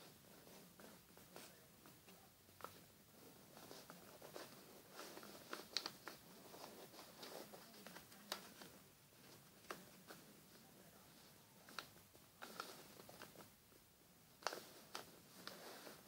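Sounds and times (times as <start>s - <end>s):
paper being folded and creased: 2.6s - 10.2s, 11.6s - 13.5s, 14.4s - 16.0s.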